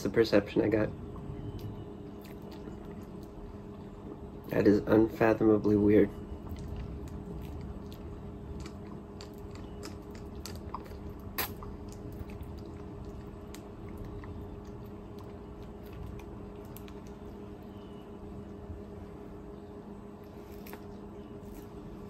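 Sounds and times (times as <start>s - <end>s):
wet mouth clicks and smacks: 8.6s - 14.8s.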